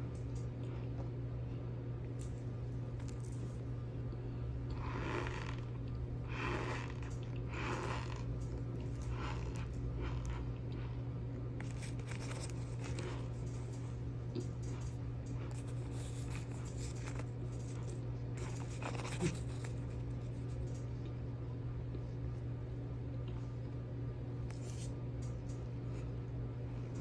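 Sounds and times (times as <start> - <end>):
steady low hum: 0.0 - 27.0
plastic scoop scraping powder: 4.7 - 10.4, 11.6 - 13.4, 15.5 - 20.5.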